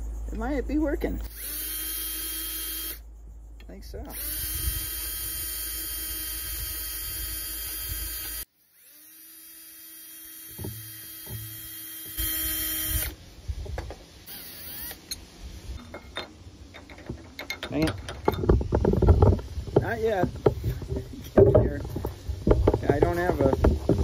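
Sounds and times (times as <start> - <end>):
cordless drill whining: 1.2 - 3.0, 4.1 - 13.2, 14.3 - 15.2.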